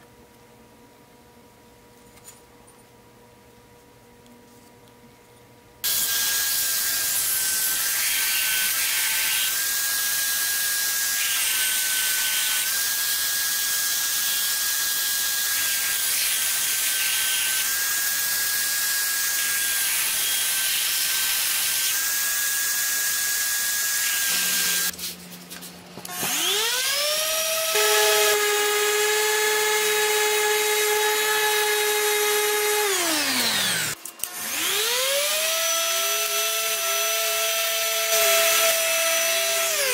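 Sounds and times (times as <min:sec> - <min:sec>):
belt sander whining: 0:26.1 - 0:39.9
angle grinder spinning: 0:32.2 - 0:36.8.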